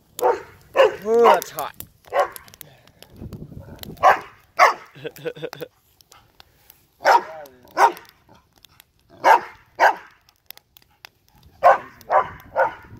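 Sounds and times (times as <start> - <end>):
dog barking: 0.2 - 1.4, 2.1 - 2.5, 4.0 - 4.9, 7.0 - 8.1, 9.2 - 10.1, 11.6 - 12.9.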